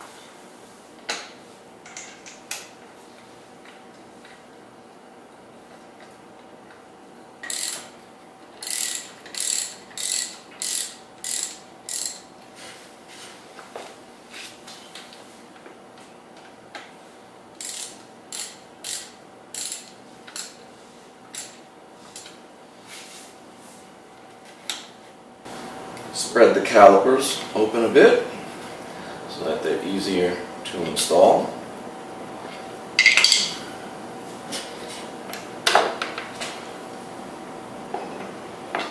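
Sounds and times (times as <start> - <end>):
socket ratchet clicking: 7.4 - 7.9, 8.6 - 12.2, 17.6 - 20.5.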